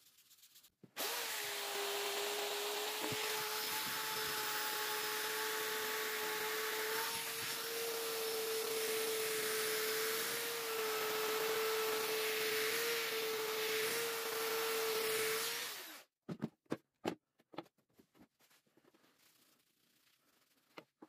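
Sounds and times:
drill sanding disc on blade: 1.0s - 16.0s.

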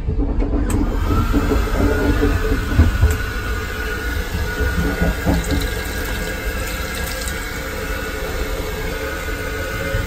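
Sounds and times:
train rumble: 0.0s - 6.3s
tap water running into basin: 3.8s - 9.6s.

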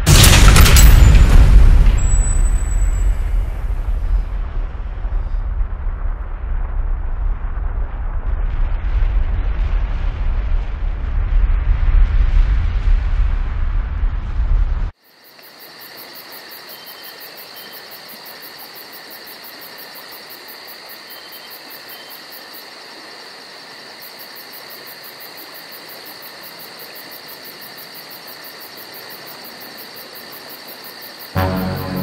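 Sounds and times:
insects chirring: 15.0s - 32.0s.

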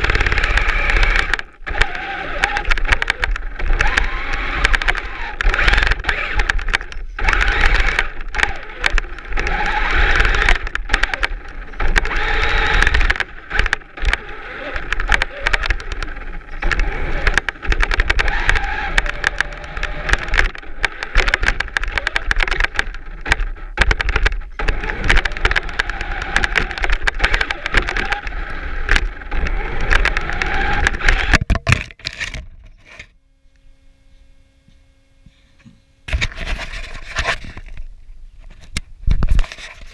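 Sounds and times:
electric toy truck whirring: 0.0s - 31.4s.

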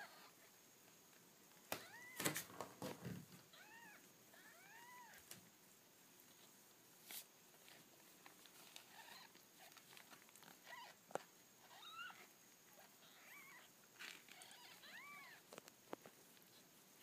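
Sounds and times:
newborn kittens mewing: 1.8s - 2.2s, 3.5s - 5.2s, 10.4s - 11.0s, 11.6s - 15.5s.

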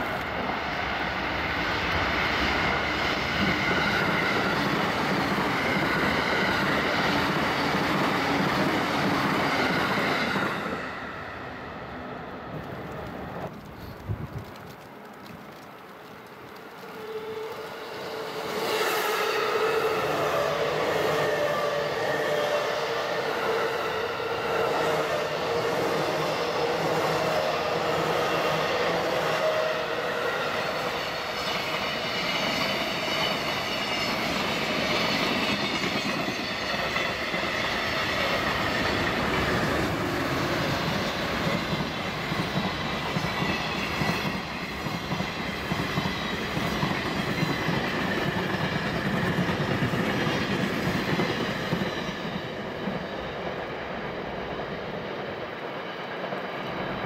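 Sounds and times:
train wheels rumbling on rails: 0.0s - 57.0s.

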